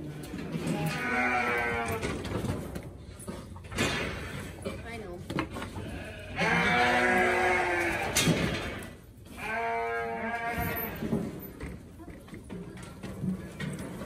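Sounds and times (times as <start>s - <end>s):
sheep bleating: 0.6s - 2.0s, 5.8s - 8.2s, 9.3s - 11.0s.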